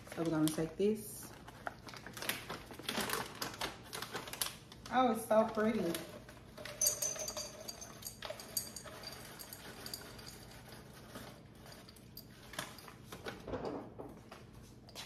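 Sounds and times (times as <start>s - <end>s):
candy rattling into glass jar: 6.6s - 12.9s.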